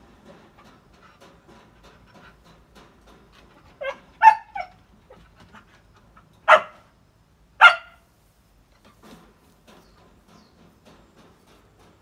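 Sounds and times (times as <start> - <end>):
dog barking: 3.8 - 4.7, 6.5 - 6.8, 7.6 - 8.0.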